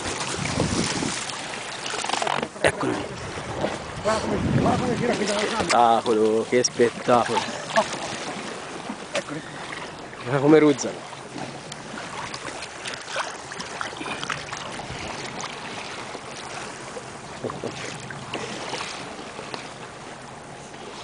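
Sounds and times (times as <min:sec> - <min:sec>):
wind on microphone: 0:00.0 - 0:01.4, 0:02.8 - 0:05.8, 0:14.2 - 0:15.8
water lapping against boat: 0:00.0 - 0:21.0.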